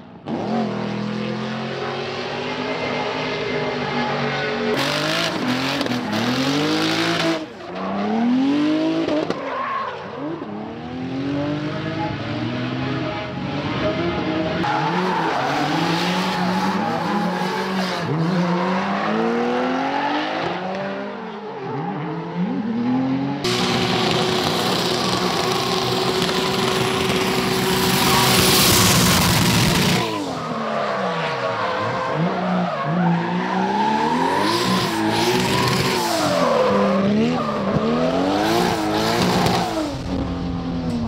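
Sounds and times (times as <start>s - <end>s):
car engines revving: 0.0s - 41.0s
tyres screeching: 23.5s - 39.8s.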